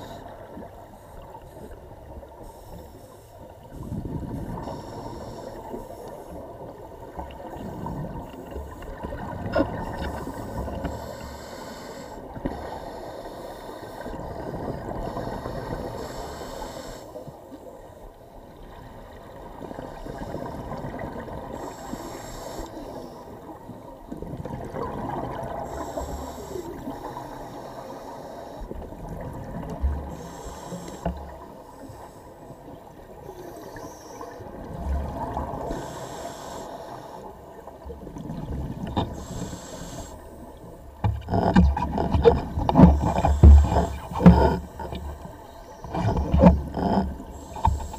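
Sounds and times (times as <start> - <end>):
diver inhaling through regulator: 4.6 - 6.4, 10.1 - 17.2, 21.5 - 23.4, 25.6 - 28.7, 30.0 - 32.4, 35.6 - 37.4, 39.0 - 47.9.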